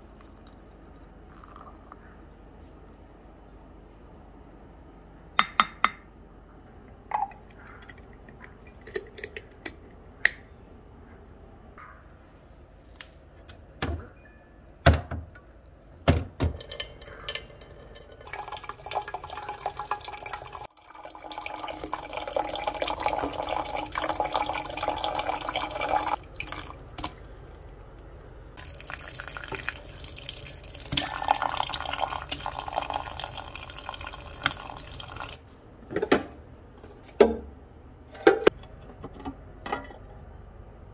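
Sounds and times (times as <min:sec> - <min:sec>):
kitchenware knocking and clinking: 0:05.4 - 0:06.1, 0:16.1 - 0:18.5, 0:38.2 - 0:40.0
hot water pouring into container: 0:18.0 - 0:27.7, 0:28.6 - 0:35.4.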